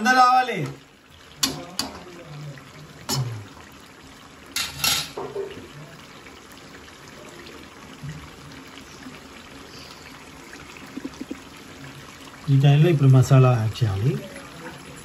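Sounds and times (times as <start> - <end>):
curry bubbling and sizzling in oil: 0.0 - 15.0
metal ladle knocking on pan: 1.4 - 2.0.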